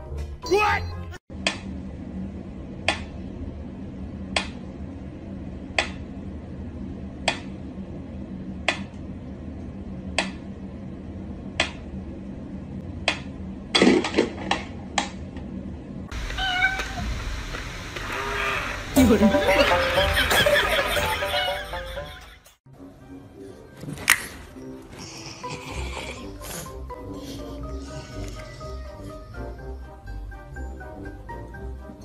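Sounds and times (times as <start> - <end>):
cat meowing: 16.2 - 17.1.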